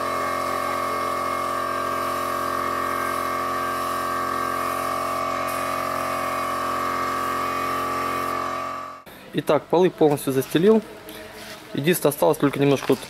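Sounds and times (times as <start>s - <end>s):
spray gun hissing: 0.0s - 9.0s
air compressor whining drone: 0.0s - 9.2s.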